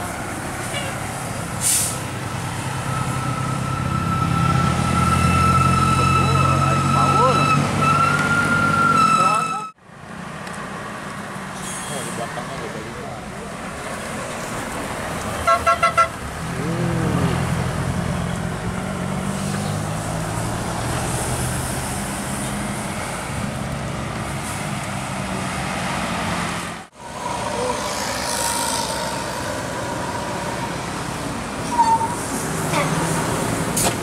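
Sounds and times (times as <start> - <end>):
bus horn toots: 15.4 - 16.2
coach diesel engine passing: 16.1 - 34.0.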